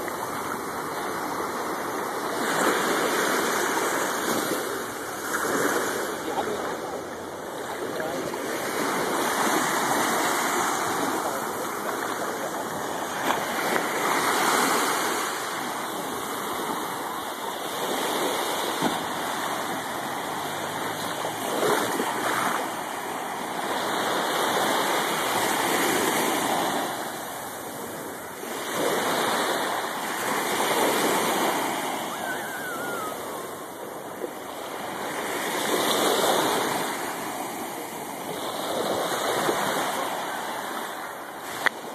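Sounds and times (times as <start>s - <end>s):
small waves washing onto beach: 0.0s - 41.9s.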